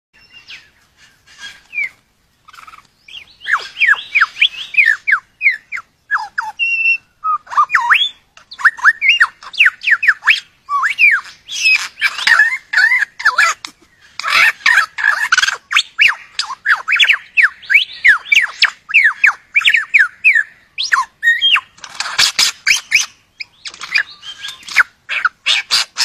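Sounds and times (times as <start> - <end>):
bird singing whistled notes: 0.2 - 26.0.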